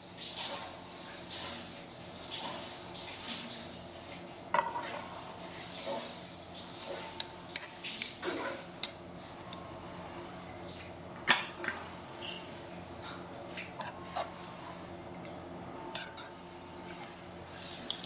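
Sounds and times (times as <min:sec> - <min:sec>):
metal utensils clinking on dishes: 0:15.9 - 0:16.4.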